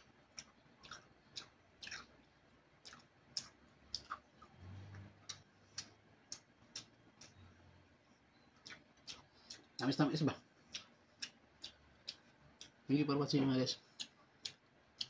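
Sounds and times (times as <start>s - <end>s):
person chewing with mouth clicks: 0.1s - 7.4s, 8.6s - 9.9s, 10.7s - 12.9s, 14.0s - 15.0s.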